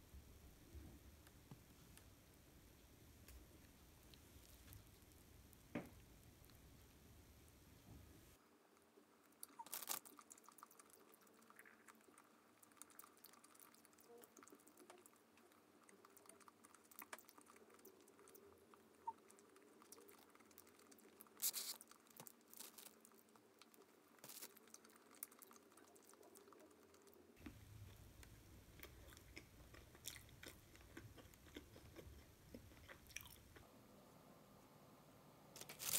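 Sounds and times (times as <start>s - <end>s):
bread roll crackling as torn: 9.5s - 10.4s, 21.3s - 23.4s, 35.6s - 35.9s.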